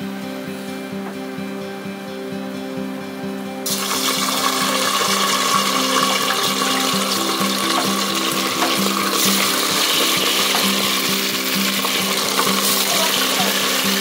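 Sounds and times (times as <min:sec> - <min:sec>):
beef sizzling in hot oil: 0:03.6 - 0:14.0.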